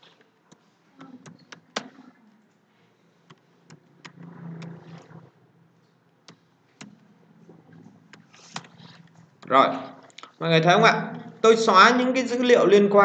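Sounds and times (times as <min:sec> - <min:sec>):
faint low rumble: 0:03.6 - 0:06.2
keyboard and mouse clicks: 0:06.2 - 0:07.1.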